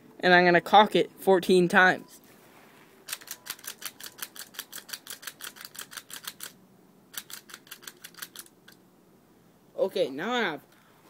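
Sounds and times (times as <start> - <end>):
pistol slide clicking: 3.1 - 8.8.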